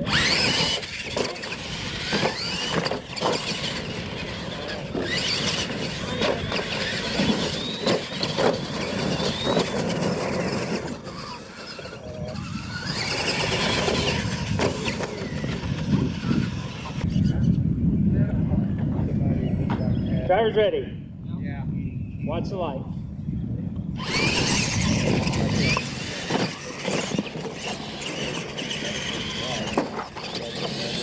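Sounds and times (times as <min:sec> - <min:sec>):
trucks thumping on dirt jumps: 0:00.0 - 0:17.2, 0:24.0 - 0:31.0
toy truck motors whining: 0:00.0 - 0:17.6, 0:24.0 - 0:31.0.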